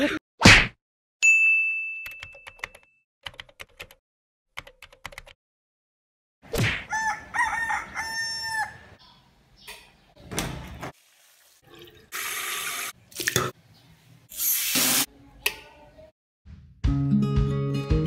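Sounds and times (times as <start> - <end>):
rooster crowing: 6.9 - 9.0
tap water running and splashing: 10.6 - 13.5.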